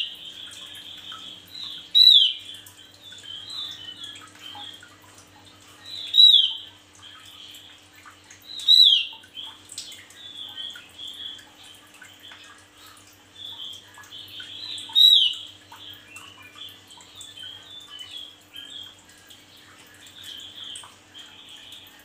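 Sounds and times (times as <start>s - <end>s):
bird singing sharp downward notes: 0.0s - 4.8s, 5.8s - 7.4s, 8.5s - 9.6s, 13.4s - 19.0s
soft chattering bird twitters: 0.0s - 22.0s.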